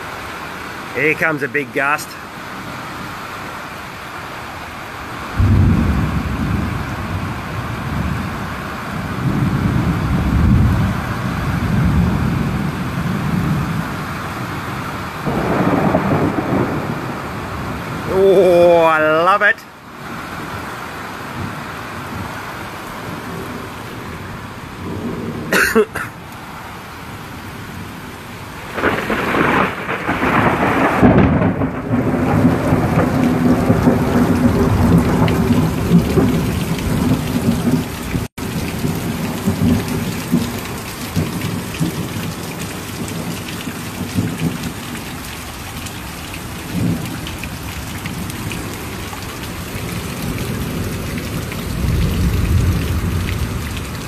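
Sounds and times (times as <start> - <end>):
heavy rain: 0.0 - 54.0
wind: 0.0 - 54.0
rolling thunder: 5.3 - 13.9, 15.2 - 18.1, 28.7 - 44.8, 49.5 - 54.0.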